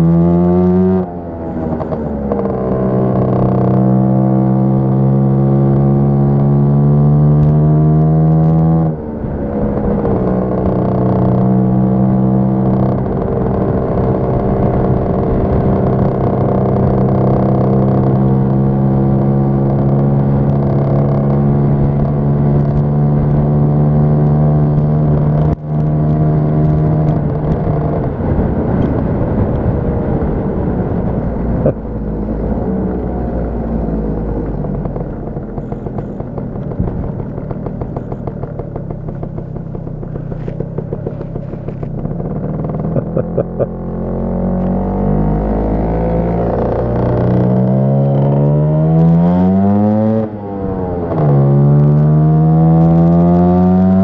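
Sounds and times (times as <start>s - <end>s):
scooter two-stroke engine running: 8.4s - 49.1s.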